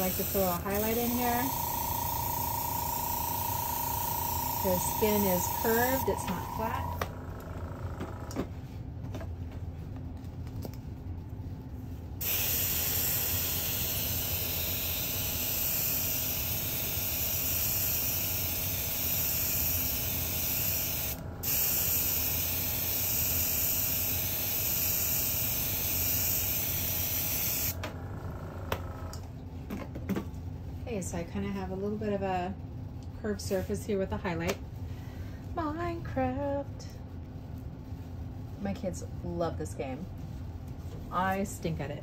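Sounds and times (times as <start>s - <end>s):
airbrush hissing: 0.0s - 7.0s, 12.2s - 27.8s
low steady hum: 0.0s - 12.2s, 27.8s - 42.0s.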